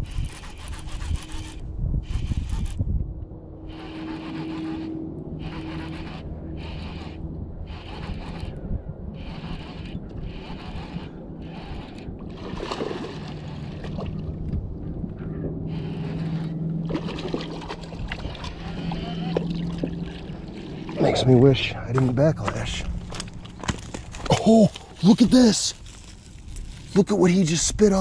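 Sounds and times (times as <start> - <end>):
fishing reel whirring: 0.0 - 2.8, 3.7 - 12.2, 15.7 - 16.6, 18.2 - 21.0
fish splashing in water: 12.3 - 14.4, 16.8 - 21.0.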